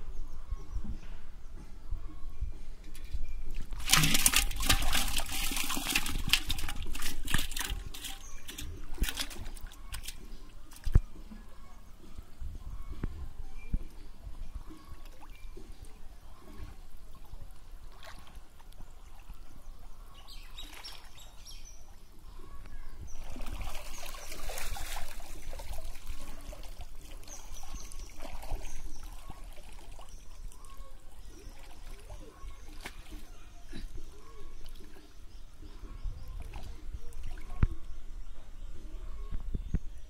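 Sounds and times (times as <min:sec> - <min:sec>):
water sloshing and splashing: 0:02.9 - 0:11.6, 0:14.6 - 0:37.9.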